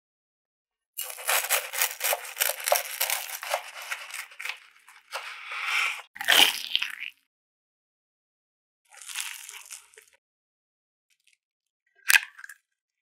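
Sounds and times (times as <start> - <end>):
knife sawing crusty bread: 1.0 - 6.0
knife scraping: 1.0 - 6.1.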